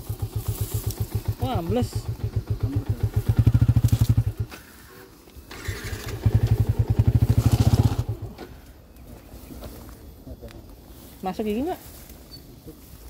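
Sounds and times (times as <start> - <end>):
motorcycle engine chugging: 0.0 - 8.8.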